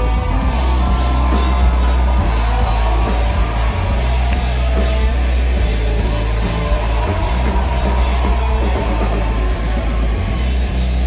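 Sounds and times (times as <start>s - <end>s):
booming bass: 0.0s - 11.0s
drum kit: 0.0s - 11.0s
electric guitar: 0.0s - 11.0s.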